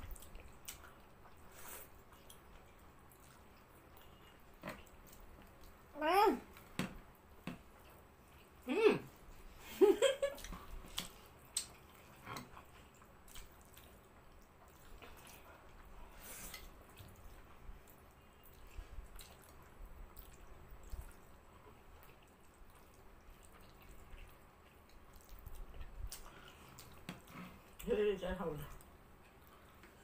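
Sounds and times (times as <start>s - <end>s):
noodles being slurped and chewed: 10.4s - 27.9s.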